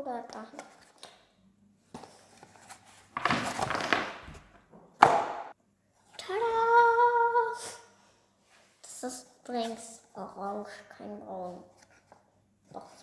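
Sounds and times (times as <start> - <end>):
cardboard rustling and scraping: 2.0 - 4.6.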